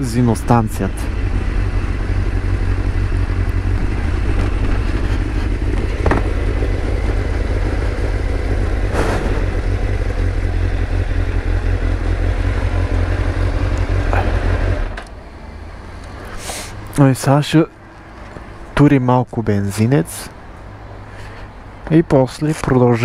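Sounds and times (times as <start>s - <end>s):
motorcycle engine running: 0.0s - 15.6s
wind and road noise: 0.0s - 23.0s
short rush of noise: 8.8s - 9.8s.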